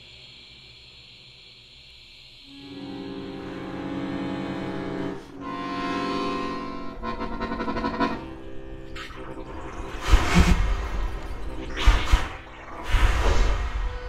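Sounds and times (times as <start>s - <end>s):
accordion chord: 2.5s - 8.9s.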